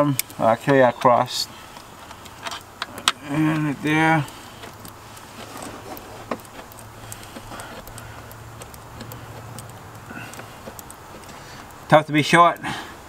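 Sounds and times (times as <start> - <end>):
low steady hum: 0.0 - 13.0
light clicks and taps of screws: 1.7 - 11.9.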